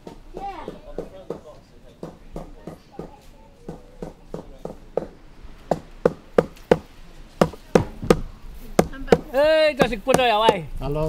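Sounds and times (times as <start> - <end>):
wood being chopped: 5.7 - 10.8.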